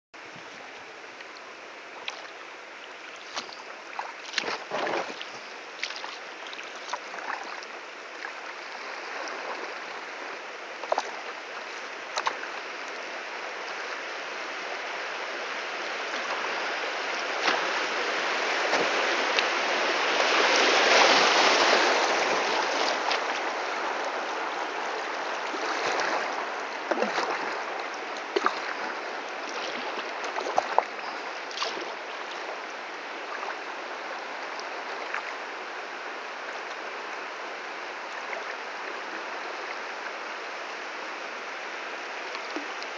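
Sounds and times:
rushing churning water: 0:00.2 - 0:42.9
sharp splashes: 0:03.2 - 0:07.6, 0:26.9 - 0:28.9, 0:31.5 - 0:32.0.

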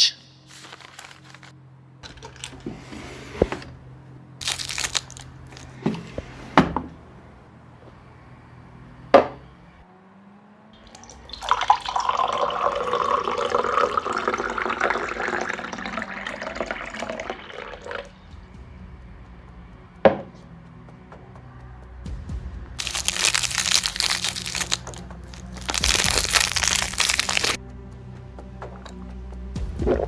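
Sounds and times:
liquid pouring into container: 0:10.9 - 0:18.1.

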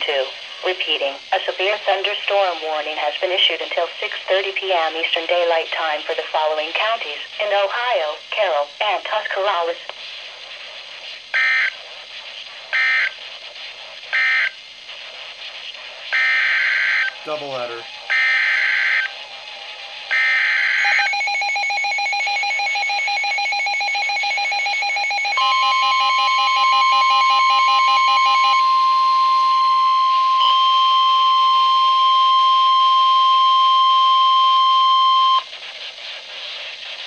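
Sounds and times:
steady warning alarm tone: 0:11.3 - 0:11.8, 0:12.7 - 0:13.2, 0:14.1 - 0:14.6, 0:16.1 - 0:35.5
buzzing data tones: 0:11.3 - 0:11.9, 0:12.7 - 0:13.2, 0:14.1 - 0:14.6, 0:16.1 - 0:35.5
rapid pulsing alert beeps: 0:11.3 - 0:14.6, 0:15.4 - 0:19.4, 0:20.1 - 0:35.8.

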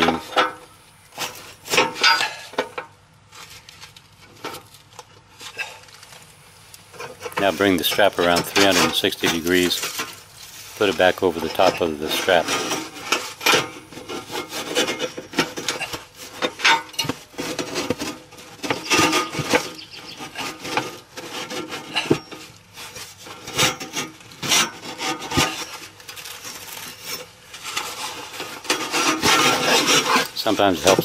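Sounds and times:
strap scraping on steel beam: 0:06.9 - 0:31.0.

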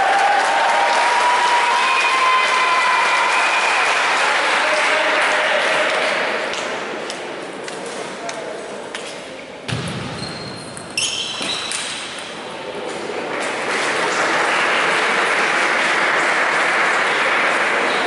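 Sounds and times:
spectators applauding: 0:00.0 - 0:06.5, 0:13.2 - 0:18.0.

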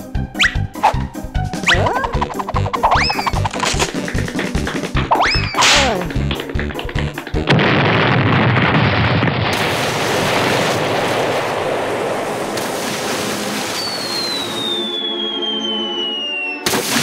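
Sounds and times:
rhythmic cartoon music: 0:00.0 - 0:07.5
cartoon explosion blast: 0:07.5 - 0:11.6.

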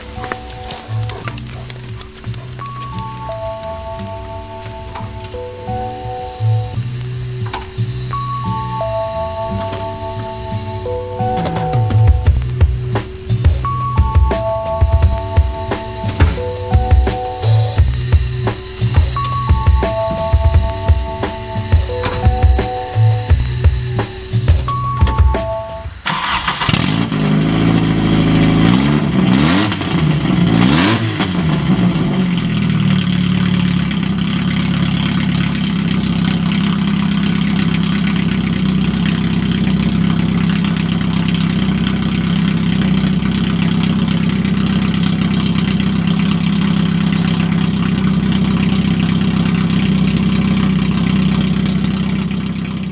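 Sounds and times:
loud raw car engine: 0:00.0 - 0:52.9
engine revving: 0:25.9 - 0:52.9.

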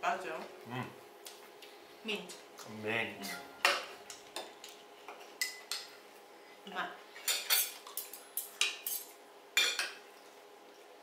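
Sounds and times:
cutlery clinking on ceramic plates: 0:07.3 - 0:10.0.

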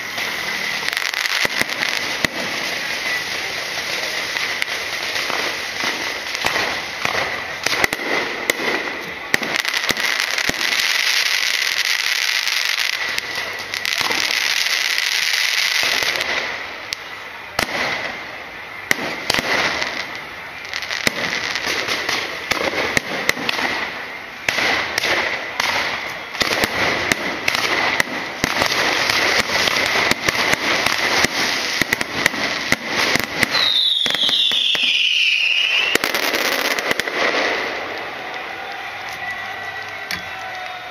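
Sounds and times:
descending firework whistle: 0:00.0 - 0:40.9
hissing crackle of fireworks: 0:00.0 - 0:40.9.

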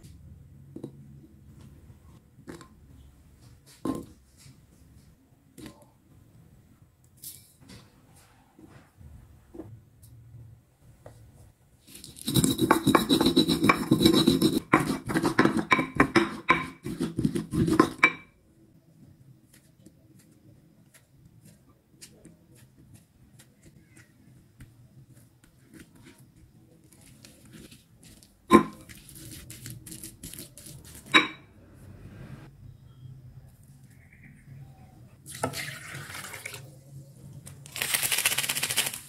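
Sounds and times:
pestle grinding in mortar: 0:12.0 - 0:18.0.

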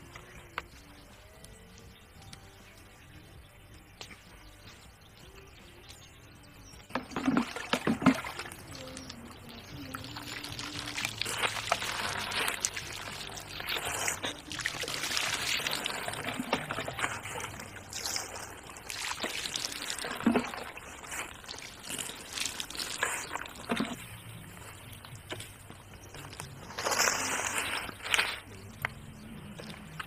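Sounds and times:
water splashing and trickling: 0:06.8 - 0:30.0.

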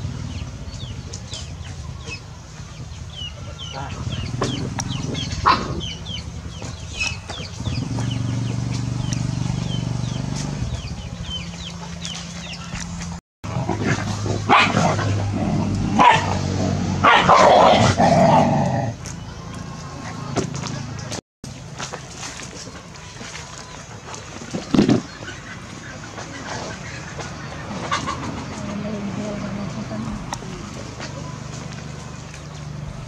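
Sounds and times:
dog barking: 0:05.4 - 0:05.8, 0:14.5 - 0:15.1, 0:16.0 - 0:16.4, 0:17.0 - 0:18.0.

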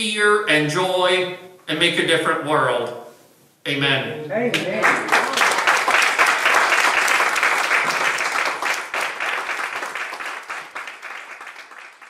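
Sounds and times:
congregation applauding: 0:04.5 - 0:12.0.

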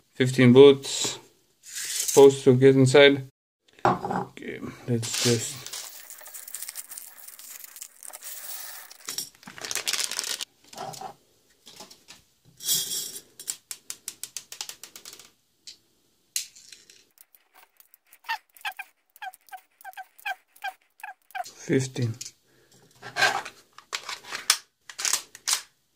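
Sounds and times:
plastic bag crinkling: 0:05.0 - 0:10.5
plastic pellets rattling into dish: 0:05.0 - 0:10.5, 0:16.8 - 0:21.4.

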